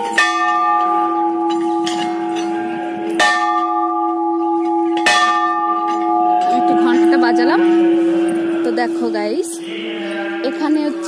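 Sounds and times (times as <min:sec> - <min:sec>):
temple bell ringing: 0:00.0 - 0:11.0.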